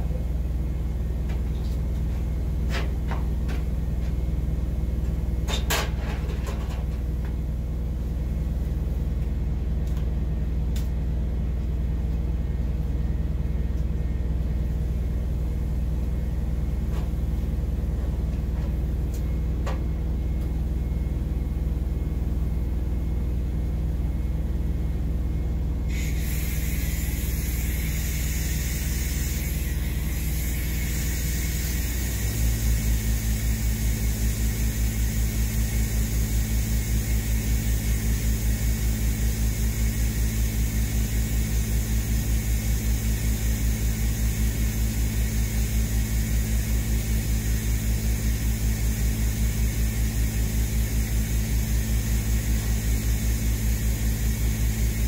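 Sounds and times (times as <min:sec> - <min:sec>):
welding arc hissing: 0:25.9 - 0:55.0.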